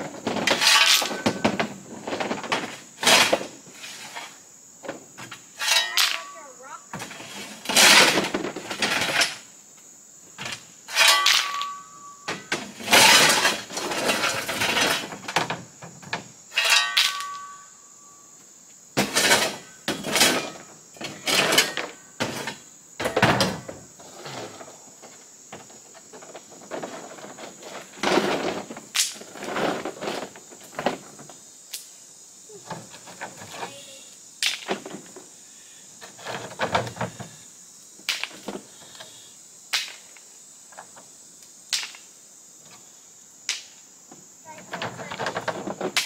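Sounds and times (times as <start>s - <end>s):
shovel scraping rocks: 0.3s - 1.4s, 3.0s - 4.4s, 5.6s - 9.5s, 10.9s - 12.0s, 12.6s - 15.2s, 16.5s - 17.6s, 26.7s - 30.6s
metallic ring of shovel: 5.6s - 6.4s, 10.9s - 12.3s, 16.5s - 17.7s.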